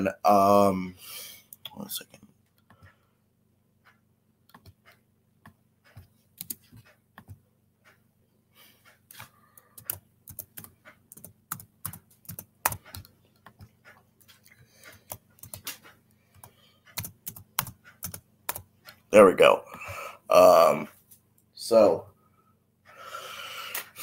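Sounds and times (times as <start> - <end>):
keyboard typing clicks: 3.9 - 7.4, 9.1 - 14.0, 14.8 - 19.0.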